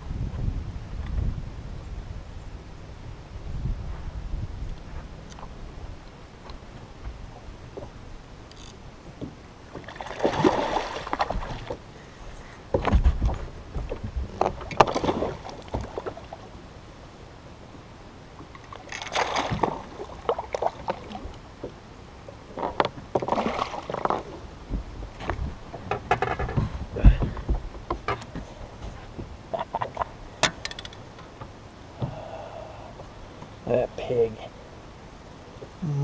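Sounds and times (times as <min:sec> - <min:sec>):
dull knocks: 0:12.7 - 0:15.0.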